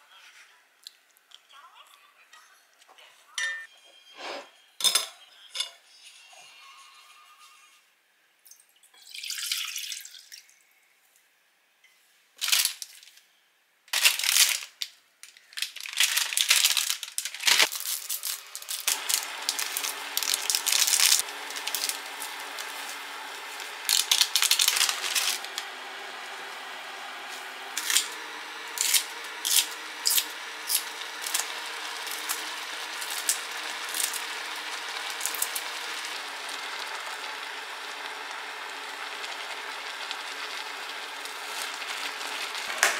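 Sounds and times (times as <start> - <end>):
water pouring into pot: 8.8 - 10.6, 17.6 - 26.0, 27.6 - 42.9
seasoning packet crinkling: 12.4 - 13.1, 14.0 - 42.9
water boiling in pot: 17.2 - 42.9.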